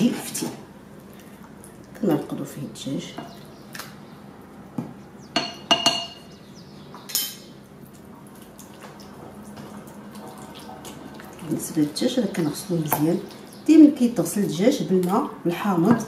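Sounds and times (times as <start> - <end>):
hands squishing wet chicken: 3.3 - 4.6, 7.7 - 15.4
clinks against ceramic bowl: 5.4 - 6.3.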